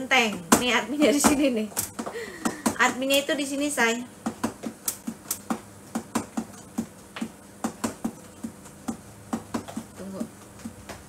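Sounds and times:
fingernails tapping on touchscreen: 0:04.2 - 0:11.0.

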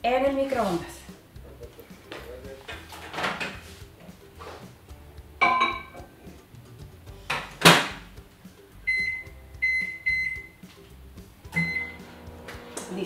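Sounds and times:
ceramic mug clinking: 0:05.4 - 0:06.0
short keypad beeps: 0:08.9 - 0:10.5, 0:11.6 - 0:12.0.

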